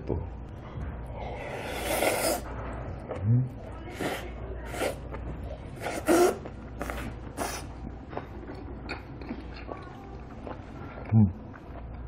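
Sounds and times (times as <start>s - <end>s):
loud slurping: 1.4s - 2.5s, 5.8s - 7.8s.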